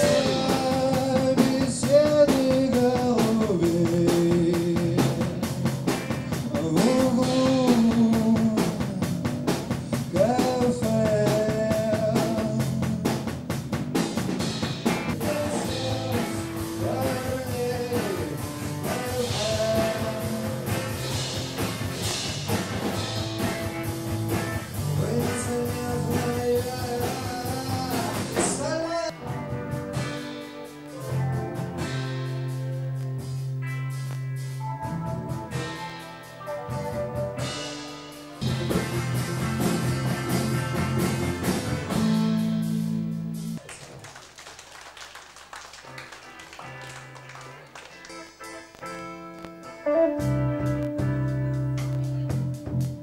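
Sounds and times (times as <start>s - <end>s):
sliding lead guitar melody: 0.0s - 13.6s, 14.4s - 43.6s, 46.1s - 53.0s
rock band playing live: 0.0s - 43.7s, 45.6s - 53.0s.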